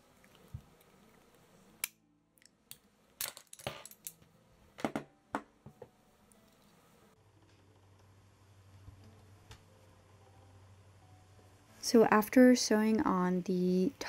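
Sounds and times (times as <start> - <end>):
tools clicking and clacking: 3.2 - 4.2.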